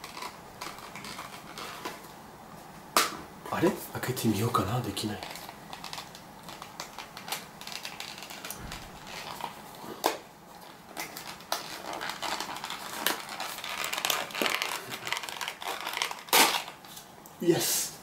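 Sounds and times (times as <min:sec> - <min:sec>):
cardboard packaging crinkling: 0:00.0 - 0:02.2, 0:03.6 - 0:17.1.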